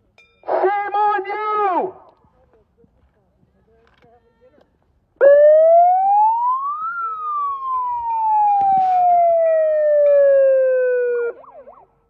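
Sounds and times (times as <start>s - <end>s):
siren wailing: 5.2s - 12.0s.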